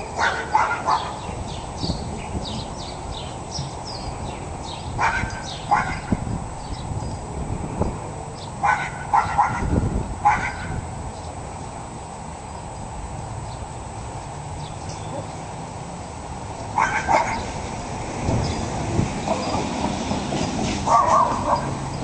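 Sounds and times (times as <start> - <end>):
dog barking: 0.2 - 1.2, 5.0 - 6.2, 8.6 - 10.8, 16.8 - 17.5, 20.9 - 21.8.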